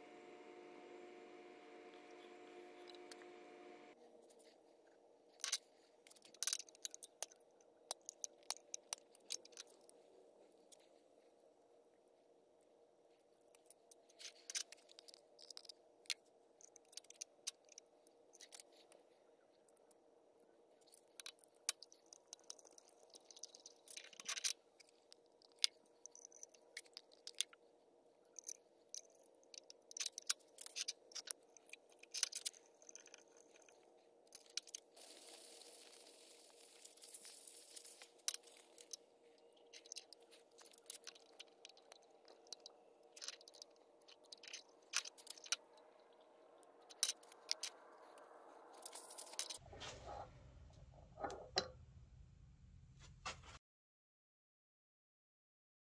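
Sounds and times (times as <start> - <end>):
faint steady hum: 0.0 - 53.2
small steel parts clicking: 5.4 - 9.9, 13.4 - 19.0, 20.8 - 27.6, 28.3 - 45.7, 46.8 - 49.6
continuous metal scraping: 48.6 - 51.8.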